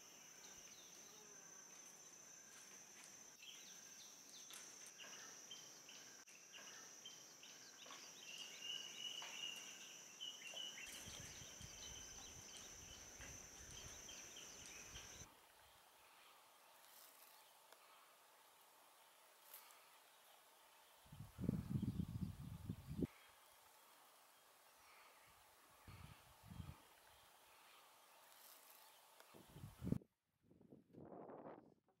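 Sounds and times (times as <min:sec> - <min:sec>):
high-pitched insect drone: 0:00.0 - 0:15.3
birds chirping: 0:03.4 - 0:16.4.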